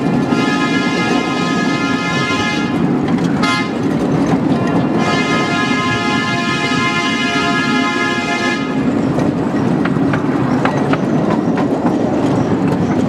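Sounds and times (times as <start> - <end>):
rumble of train cars: 0.0 - 13.0
wheels clicking over rail joints: 0.0 - 13.0
train horn blast: 0.2 - 3.9, 4.9 - 8.9.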